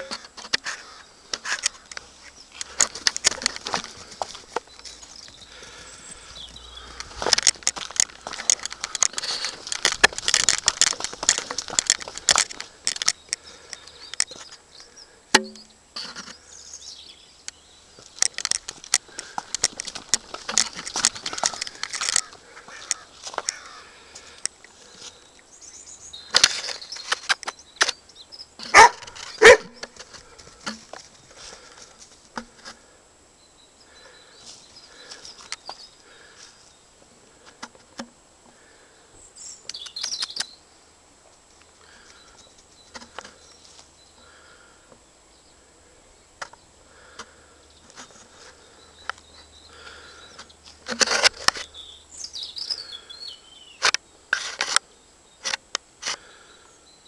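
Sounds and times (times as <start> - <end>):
footsteps on frosty grass and gravel: 0.6 - 13.6, 18.0 - 25.3.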